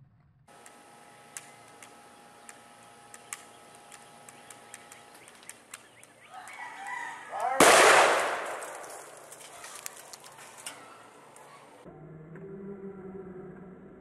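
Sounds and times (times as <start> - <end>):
faint outdoor ambience: 0.0 - 14.0
thin steady whine: 0.5 - 11.9
sharp ticks: 0.6 - 7.6.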